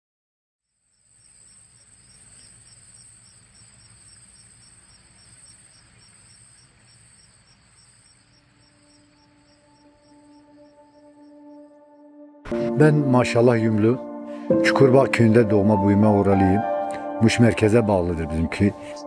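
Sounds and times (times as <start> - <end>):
crickets trilling: 0.6 - 11.8
pulsing cricket chirp: 0.6 - 12.2.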